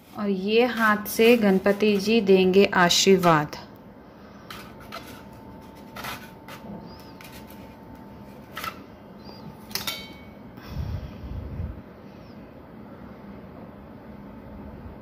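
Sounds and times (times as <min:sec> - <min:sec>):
low rumble: 0:10.6 - 0:11.9.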